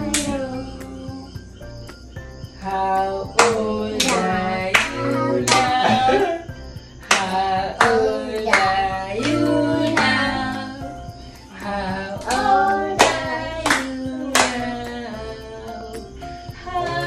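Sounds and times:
family singing together: 0:00.0 - 0:01.5, 0:02.6 - 0:17.0
people clapping in time: 0:03.4 - 0:06.2, 0:07.1 - 0:10.2, 0:12.2 - 0:14.6.

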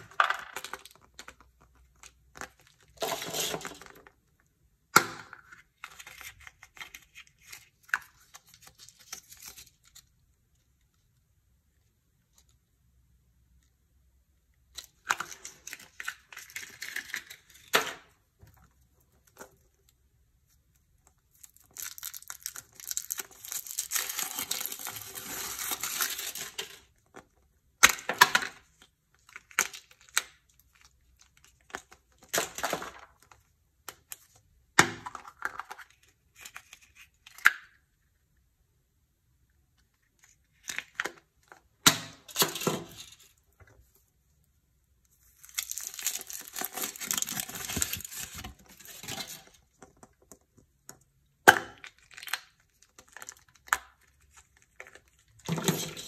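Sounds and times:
foil wrapper crinkling: 0:45.3 - 0:49.5.

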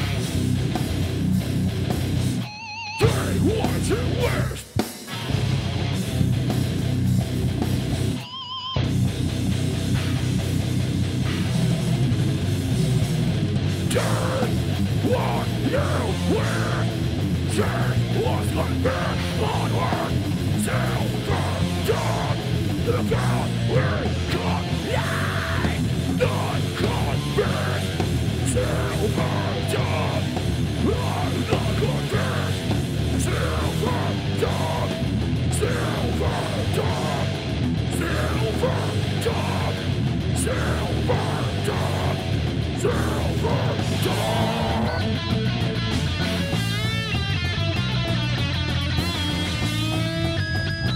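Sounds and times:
singer shouting vocals: 0:00.0 - 0:00.2, 0:03.0 - 0:04.8, 0:13.8 - 0:47.5
drum kit with cymbals: 0:00.0 - 0:08.2, 0:08.9 - 0:18.2
bass guitar: 0:00.0 - 0:50.9
distorted electric guitar: 0:00.0 - 0:50.9.

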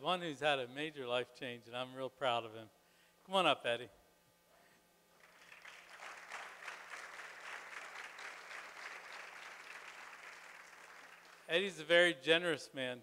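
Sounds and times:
congregation applauding: 0:05.2 - 0:11.8.

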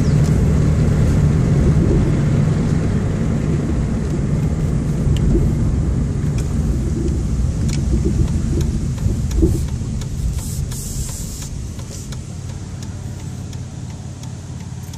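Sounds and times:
engine and tyre rumble: 0:00.0 - 0:14.9
short hiss: 0:10.2 - 0:12.2.

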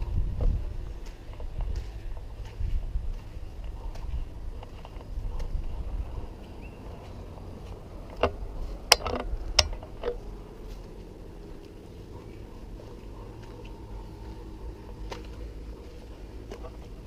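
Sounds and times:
low rumble: 0:00.0 - 0:17.0
sharp clicks and knocks: 0:08.0 - 0:10.3.

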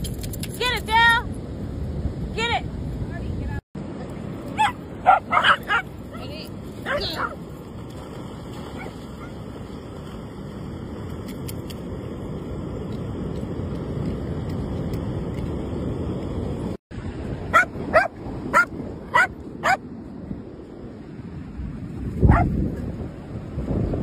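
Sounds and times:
dog barking: 0:04.6 - 0:05.9, 0:17.5 - 0:19.8, 0:22.3 - 0:22.5
wind on microphone: 0:05.0 - 0:24.0.

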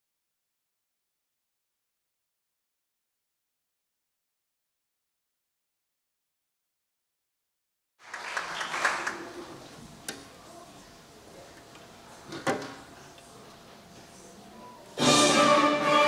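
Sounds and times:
murmured audience chatter: 0:08.0 - 0:16.0.

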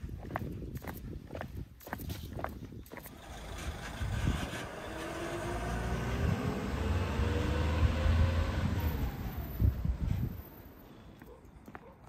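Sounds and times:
truck engine running: 0:03.1 - 0:10.9.

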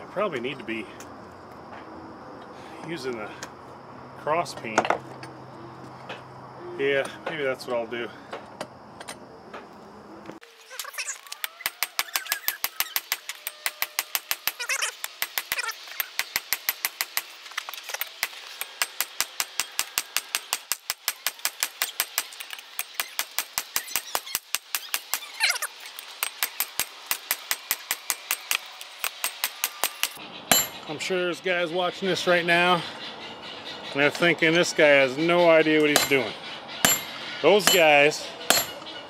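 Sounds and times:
hammer striking hot steel on anvil: 0:26.2 - 0:30.8, 0:35.9 - 0:36.2, 0:36.8 - 0:38.8.

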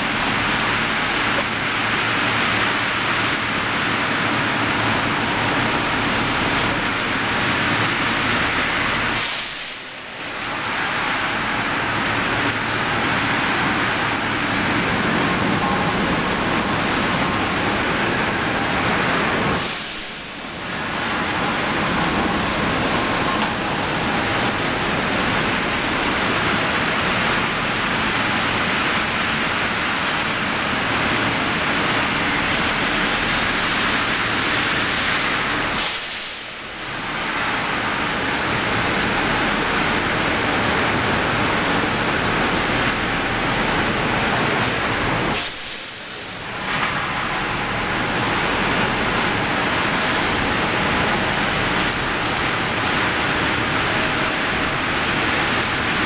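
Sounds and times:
short high hiss: 0:19.5 - 0:20.4, 0:35.8 - 0:36.5.

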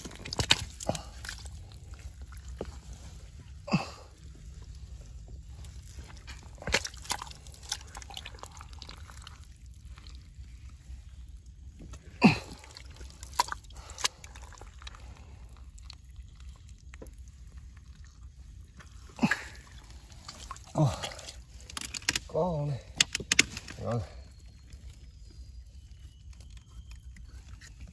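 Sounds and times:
wet clicks and drips: 0:00.0 - 0:03.0, 0:05.6 - 0:10.2, 0:12.6 - 0:22.3
wet mud squelching: 0:00.0 - 0:27.9.

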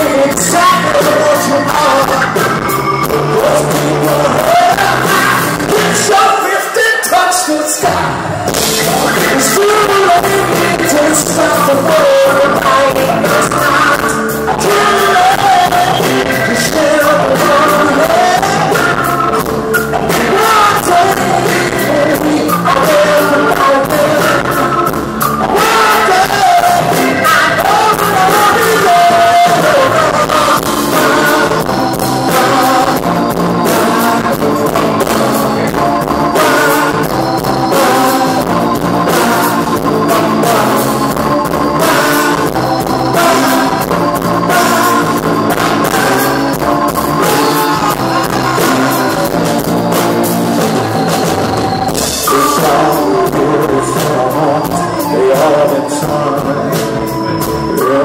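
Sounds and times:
bass guitar: 0:00.0 - 0:06.4, 0:07.8 - 0:58.0
drums: 0:00.0 - 0:58.0
electric guitar: 0:00.0 - 0:58.0
keyboards: 0:00.0 - 0:58.0
man singing: 0:00.0 - 0:58.0.

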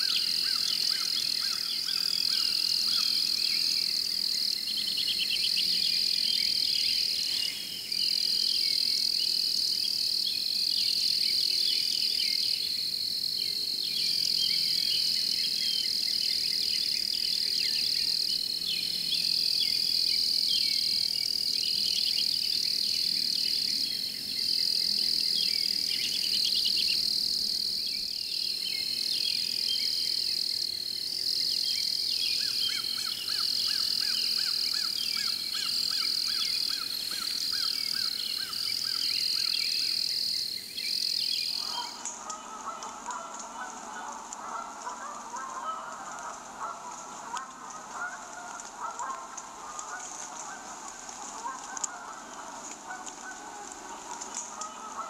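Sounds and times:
high-pitched insect trill: 0:00.0 - 0:42.2.

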